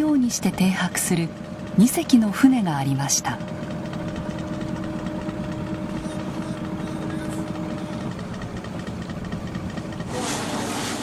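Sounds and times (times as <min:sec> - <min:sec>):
boat engine rumbling: 0:00.0 - 0:11.0
held hum: 0:00.0 - 0:11.0.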